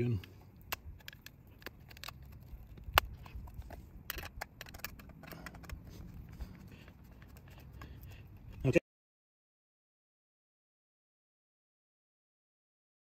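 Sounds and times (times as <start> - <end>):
low steady background noise: 0.0 - 8.8
screwdriver clicking and scraping metal: 0.2 - 8.6.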